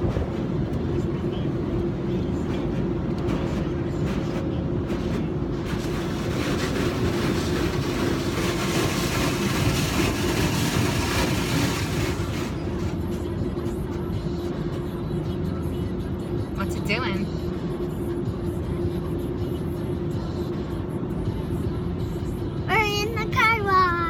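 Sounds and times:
car wash machinery drone: 0.0s - 24.0s
rushing hiss of car wash: 5.7s - 12.9s.

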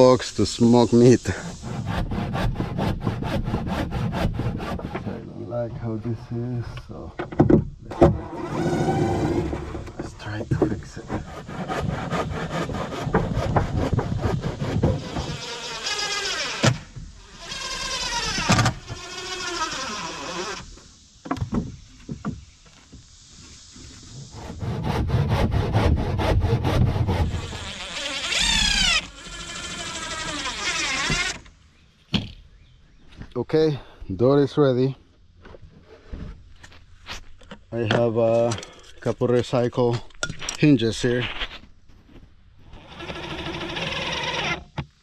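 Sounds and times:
power tool motor buzzing: 8.2s - 10.0s, 14.1s - 20.8s, 24.4s - 31.5s, 42.7s - 44.8s.

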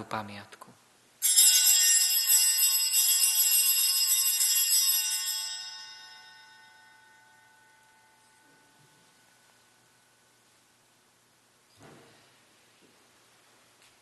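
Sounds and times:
bells jingling: 1.2s - 9.6s.

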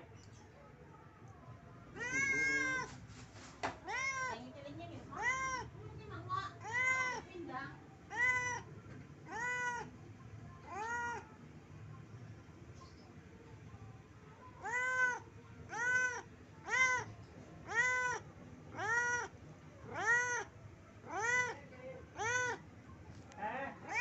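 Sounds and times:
cat meowing: 2.0s - 3.0s, 3.7s - 4.5s, 5.1s - 5.8s, 6.5s - 7.3s, 8.1s - 10.0s, 10.6s - 11.3s, 14.6s - 22.6s.

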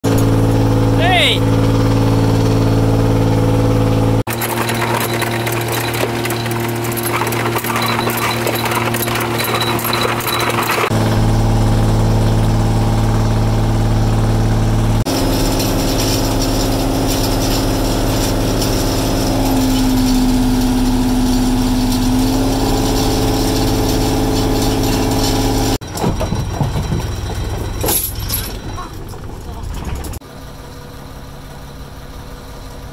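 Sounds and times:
boat engine running: 0.1s - 32.8s
clattering knocks: 4.3s - 10.9s, 25.8s - 30.2s.

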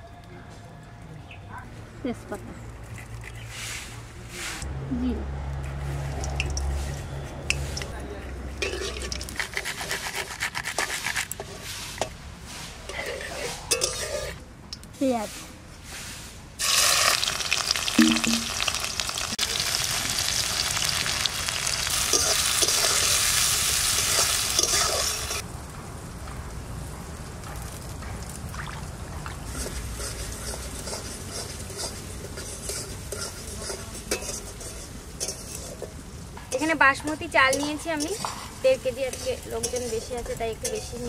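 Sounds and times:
onions sizzling in hot oil: 16.6s - 25.5s, 29.4s - 41.0s.

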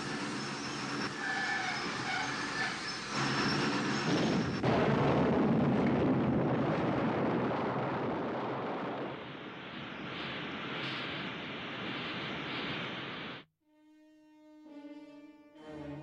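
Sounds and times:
train rolling through tunnel: 0.0s - 13.4s
heavy explosion rumble: 4.0s - 13.4s.

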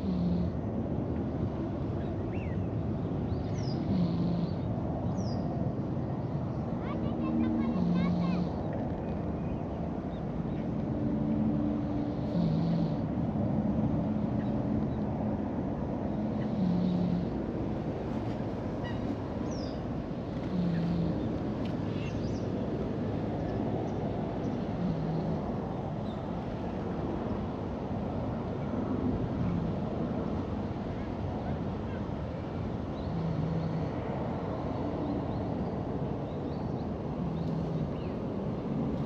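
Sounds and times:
cat snoring: 0.0s - 0.6s, 3.8s - 4.7s, 7.7s - 8.6s, 12.0s - 13.1s, 16.2s - 17.5s, 20.4s - 21.3s, 24.8s - 25.5s, 33.1s - 33.9s.

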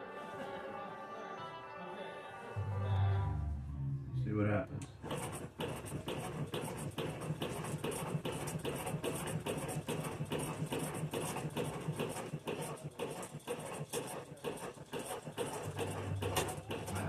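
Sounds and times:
sewing machine stitching: 4.9s - 17.0s.

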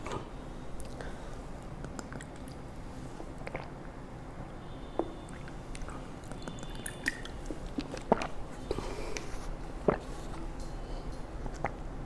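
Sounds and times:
low room hum: 0.0s - 12.0s
person swallowing water: 3.4s - 4.0s, 7.0s - 8.8s, 9.8s - 10.2s, 11.5s - 11.9s.

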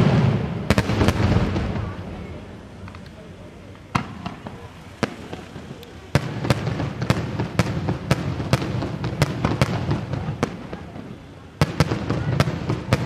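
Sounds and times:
fireworks bangs: 0.0s - 13.0s.

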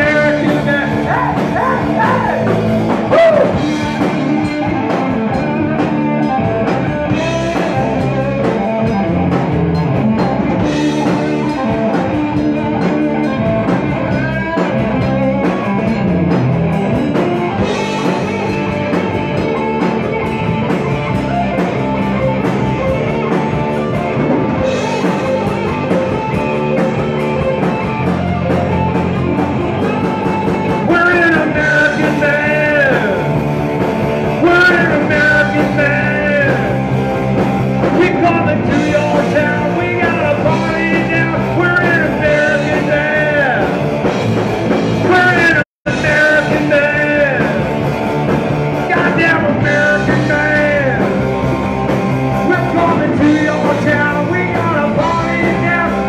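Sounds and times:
man singing: 0.0s - 9.0s, 30.6s - 33.4s, 34.3s - 37.0s, 37.8s - 44.0s, 45.0s - 47.8s, 48.8s - 51.5s, 52.3s - 56.0s
bass guitar: 0.0s - 56.0s
drum kit: 0.0s - 56.0s
electric guitar: 0.0s - 56.0s.

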